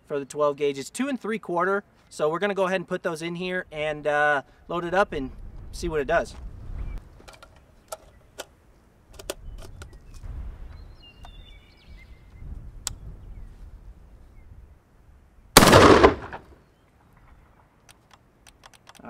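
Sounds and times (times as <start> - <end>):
shotgun handling clicks: 7.2 - 10.1, 15.6 - 16.5, 17.8 - 19.0
loud shotgun blast: 15.6 - 16.6.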